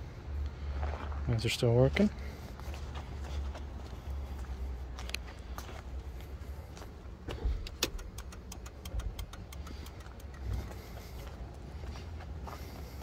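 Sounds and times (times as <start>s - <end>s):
turn signal clicking fast: 7.7s - 10.6s.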